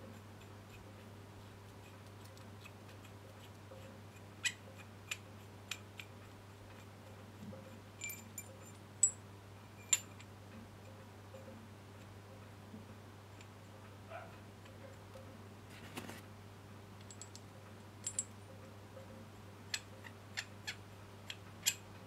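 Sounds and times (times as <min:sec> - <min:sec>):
low steady hum: 0:00.0 - 0:22.0
metal tool clicks and clinks: 0:08.0 - 0:09.2, 0:17.0 - 0:17.4, 0:18.0 - 0:18.4.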